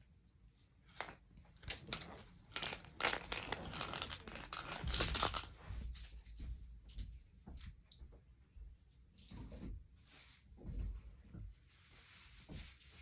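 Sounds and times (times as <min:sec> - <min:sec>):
plastic wrapping crinkling: 0:00.9 - 0:05.5.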